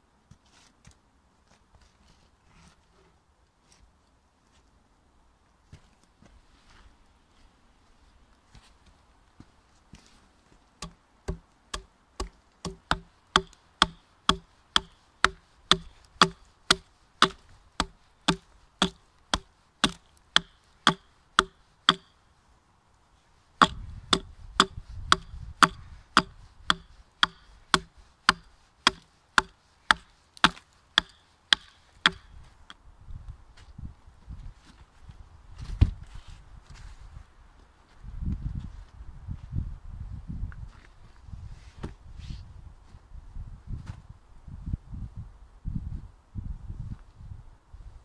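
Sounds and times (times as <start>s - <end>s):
hatchet chopping log: 10.8s - 22.1s, 23.6s - 32.4s.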